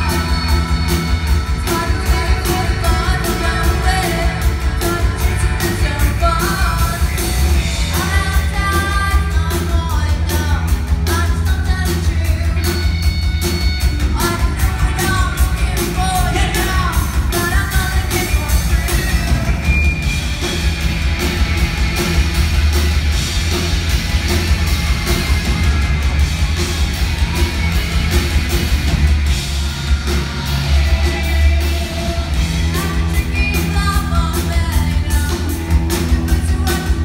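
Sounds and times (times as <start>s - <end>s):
person singing: 0.0s - 12.9s, 30.5s - 37.0s
drumming: 0.0s - 37.0s
heavy bass: 0.0s - 37.0s.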